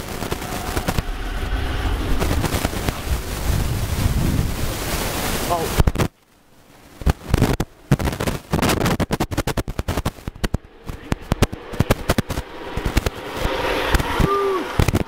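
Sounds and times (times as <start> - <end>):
sharp crackling pops: 0.0 - 1.1, 5.5 - 15.0.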